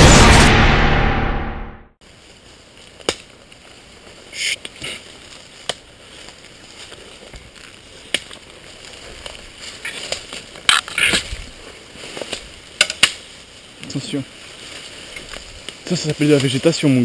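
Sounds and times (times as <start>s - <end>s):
footsteps through undergrowth: 2.0s - 17.0s
leaves rustling against clothing: 2.0s - 17.0s
twigs snapping: 2.8s - 3.7s, 4.6s - 14.0s.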